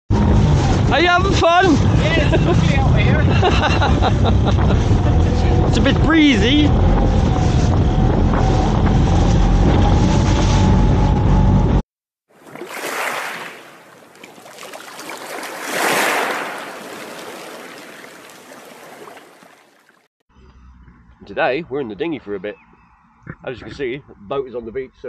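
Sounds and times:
boat engine whine: 0:00.1 - 0:11.8
underwater whoosh effect: 0:12.4 - 0:19.8.

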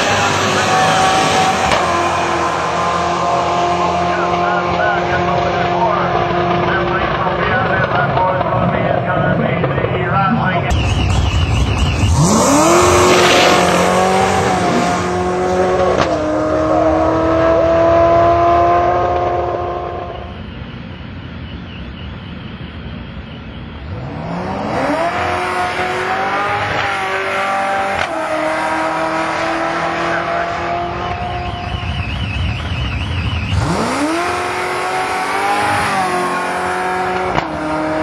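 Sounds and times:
car engine launching at full throttle: 0:00.0 - 0:08.8, 0:10.7 - 0:20.2, 0:23.6 - 0:38.0.

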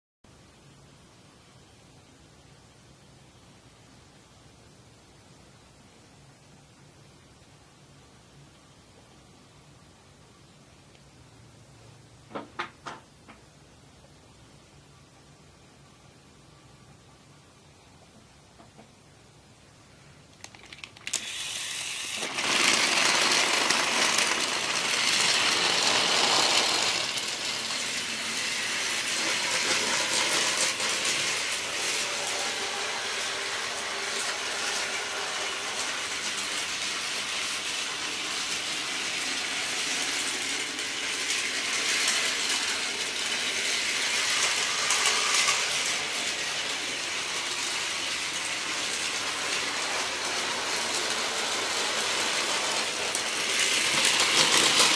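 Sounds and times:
toy trains whirring and clattering: 0:20.4 - 0:54.9.

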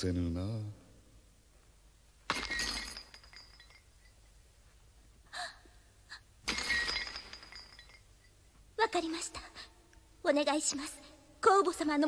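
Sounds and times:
chains clanking: 0:02.3 - 0:04.2, 0:06.5 - 0:08.3.

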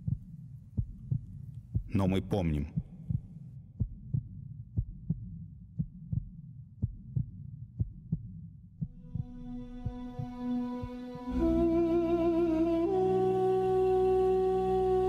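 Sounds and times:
heartbeat: 0:00.0 - 0:11.6
low drone: 0:09.0 - 0:15.0
held musical note: 0:09.2 - 0:15.0.

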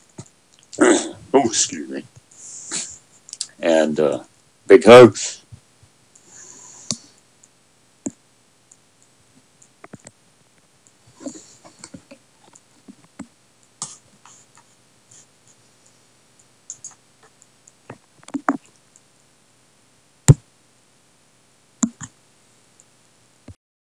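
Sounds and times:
small objects clicking on a desk: 0:09.6 - 0:10.2.

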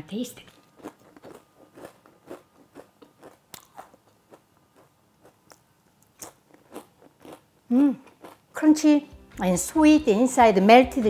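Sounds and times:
person chewing crispy bread: 0:00.5 - 0:08.5.

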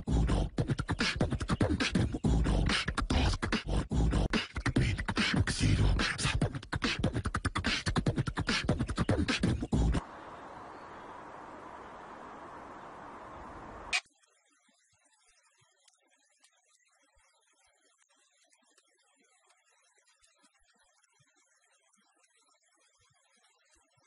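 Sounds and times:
person beatboxing: 0:00.0 - 0:10.0.

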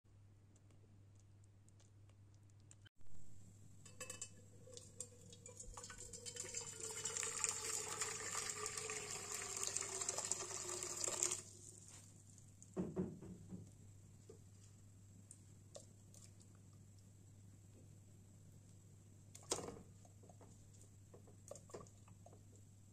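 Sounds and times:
water pouring into metal pot: 0:04.0 - 0:11.7.

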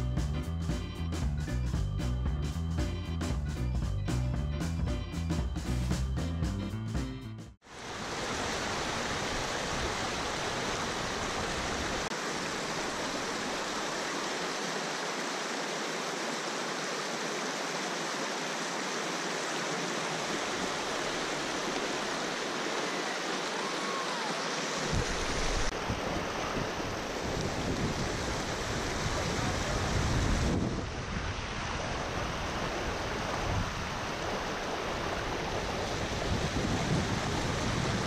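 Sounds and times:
whitewater rushing over rocks: 0:07.7 - 0:38.0.

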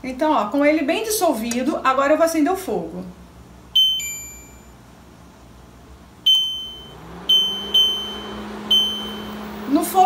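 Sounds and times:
short high electronic beeps: 0:03.8 - 0:04.7, 0:06.3 - 0:09.4.

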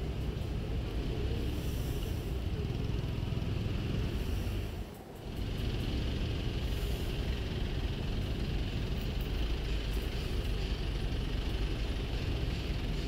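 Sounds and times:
traffic engines rumbling: 0:00.0 - 0:13.0.

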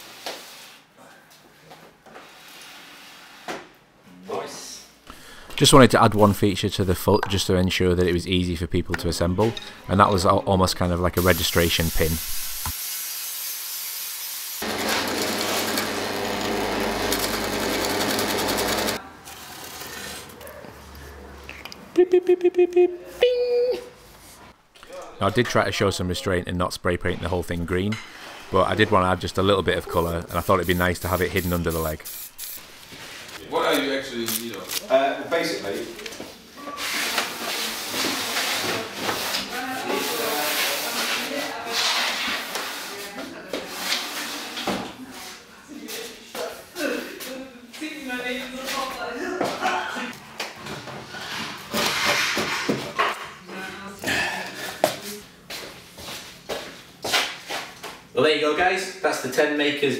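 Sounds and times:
drill press boring wood: 0:14.6 - 0:19.0.

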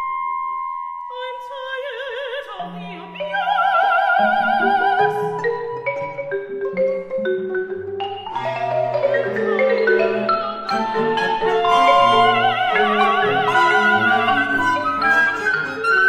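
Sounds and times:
chamber ensemble playing: 0:02.6 - 0:16.0.

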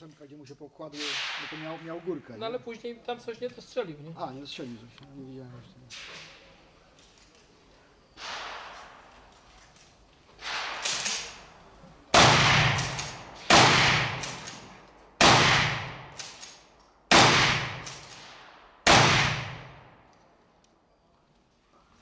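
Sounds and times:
faint gunshot reports: 0:01.0 - 0:02.0, 0:08.2 - 0:09.1, 0:10.4 - 0:11.4, 0:17.1 - 0:20.0
gunshots echoing: 0:01.0 - 0:02.2, 0:08.2 - 0:09.3, 0:10.4 - 0:20.1.

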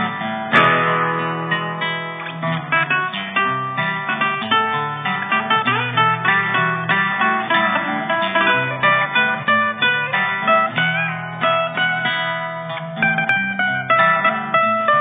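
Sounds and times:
acoustic guitar strumming chords: 0:00.0 - 0:15.0.

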